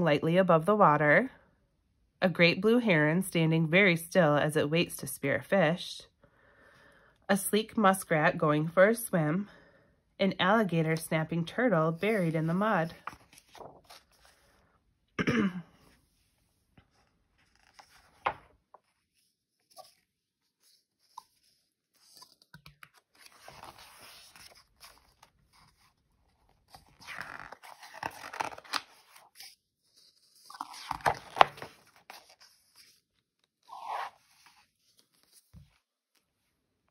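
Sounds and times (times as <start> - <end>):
paper pages rustling: 11.9 - 14.6, 16.5 - 36.4.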